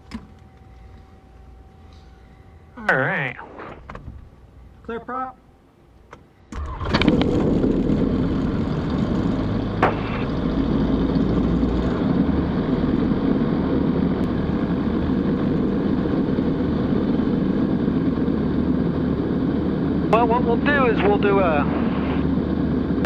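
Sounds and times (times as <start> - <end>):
aircraft engine idling: 6.2 - 23.0.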